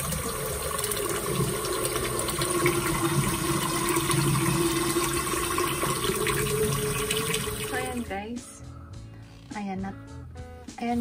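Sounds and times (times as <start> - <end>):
tap water running: 0.0 - 8.2.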